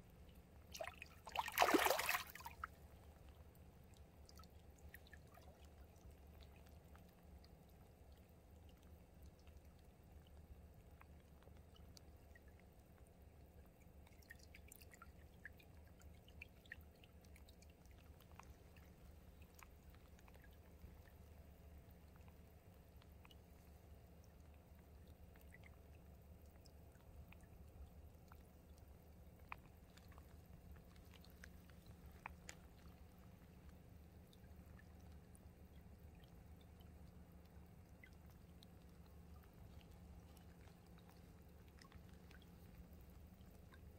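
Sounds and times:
faint trickle of a stream: 0.0 - 43.9
low steady hum: 0.0 - 43.9
small drips and ticks: 0.0 - 43.9
tiny ticks: 22.0 - 43.9.

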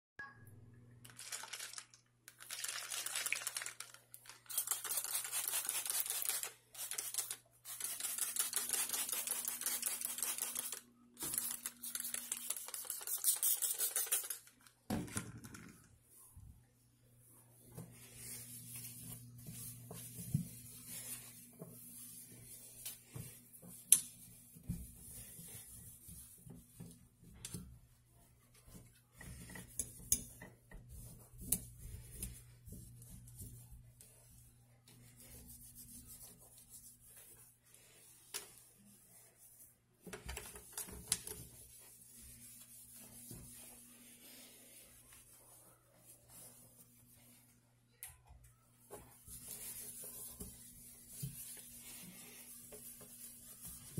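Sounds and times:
cloth wiping steel sink: 17.2 - 39.8, 40.4 - 47.6, 48.8 - 53.9.

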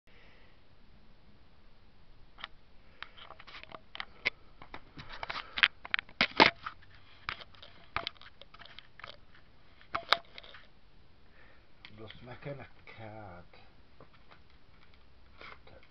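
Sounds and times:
crinkling rustles: 3.0 - 10.7, 14.0 - 15.9
handling clicks and taps: 7.3 - 9.2, 9.9 - 10.6.

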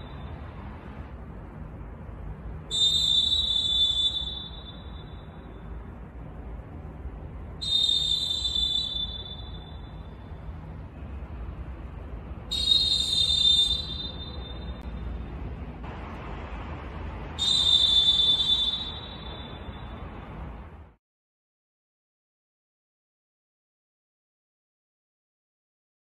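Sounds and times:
referee whistle blasts: 2.7 - 5.5, 7.6 - 10.3, 12.5 - 14.8, 17.4 - 20.1.

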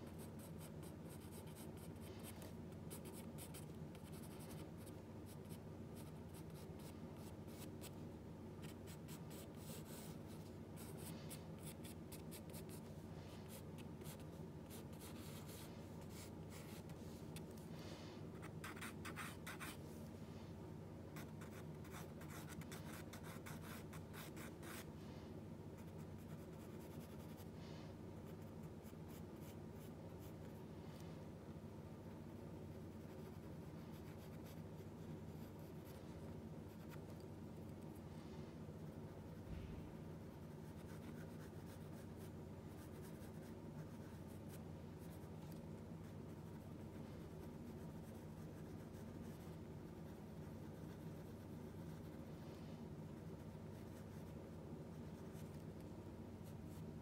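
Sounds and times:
pencil scratching on paper: 0.0 - 7.9, 8.6 - 12.8, 13.4 - 16.9, 21.2 - 24.9, 40.2 - 45.6, 46.5 - 49.4
steady low hum: 0.0 - 57.0.

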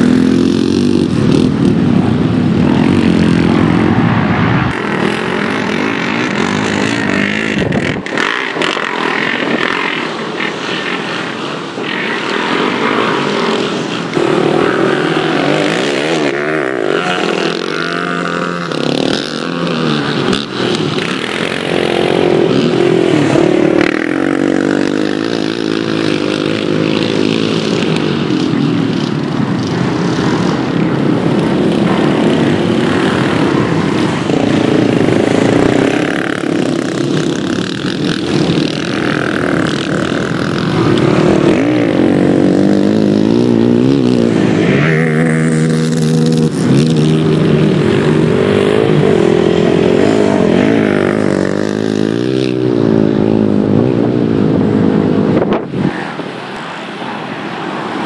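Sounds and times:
quad engines revving: 0.0 - 55.8.

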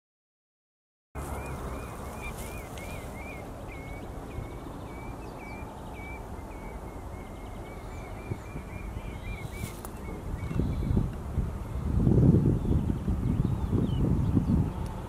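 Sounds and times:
godwit calling: 1.2 - 11.0.

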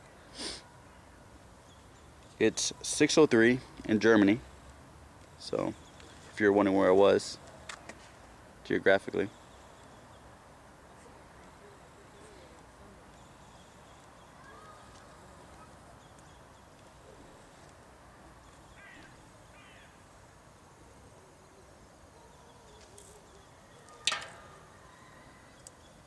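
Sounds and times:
faint steady hiss: 0.0 - 26.0
faint bird chirps: 10.9 - 17.7, 18.3 - 26.0.

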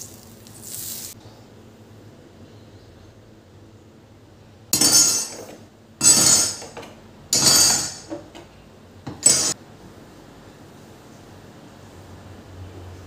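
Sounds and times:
kitchenware clattering on stone: 4.8 - 8.5, 9.1 - 9.6.

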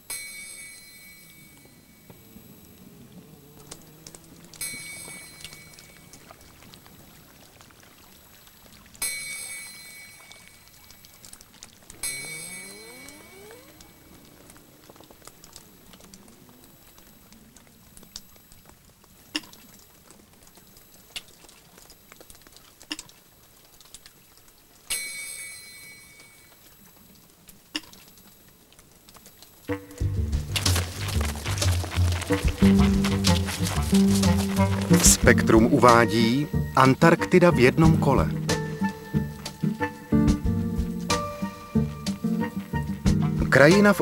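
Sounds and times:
small drips ticking: 0.0 - 44.0
water drops plinking: 3.5 - 18.3.

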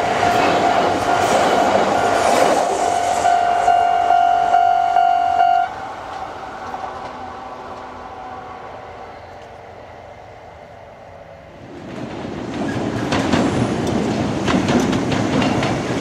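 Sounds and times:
passing electric train: 0.0 - 16.0
level crossing warning bell: 3.0 - 5.8.

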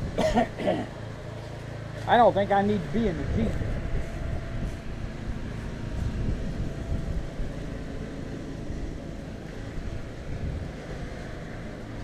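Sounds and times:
wind buffeting microphone: 2.7 - 12.0.

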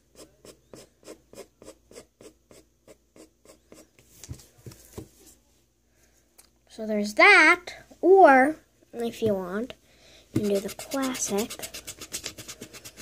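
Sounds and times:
pencil scratching on paper: 0.1 - 3.8, 10.4 - 13.0.

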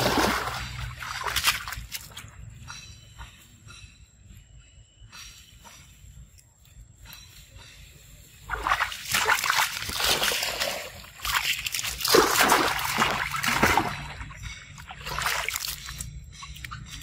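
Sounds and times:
monkeys splashing in water: 0.0 - 2.2, 8.5 - 16.1.

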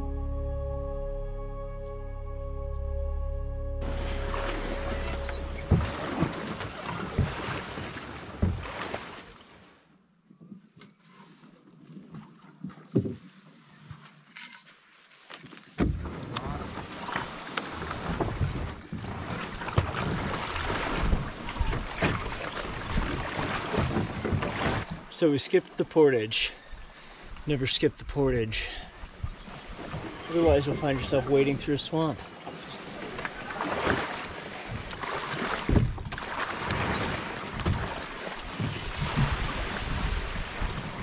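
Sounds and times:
grass scraping along canoe hull: 3.8 - 9.3, 10.9 - 11.6, 12.2 - 25.1, 29.1 - 41.0
wading steps in mud and water: 4.0 - 9.6, 12.0 - 26.1, 28.8 - 41.0.

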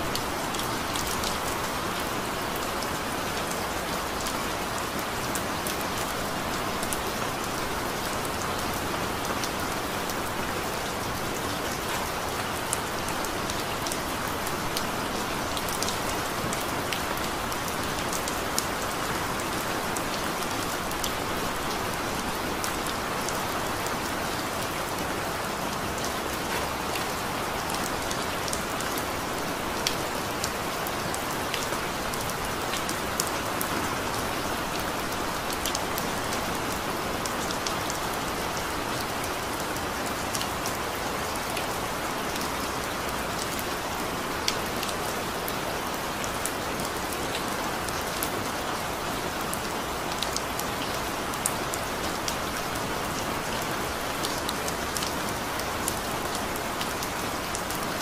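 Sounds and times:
heavy rain falling: 0.0 - 58.0.

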